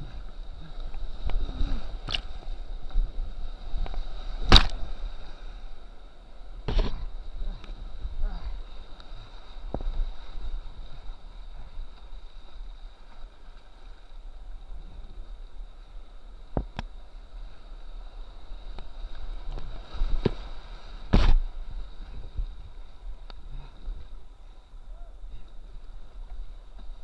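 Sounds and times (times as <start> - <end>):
water hitting camera: 4.4 - 5.0, 19.5 - 21.7.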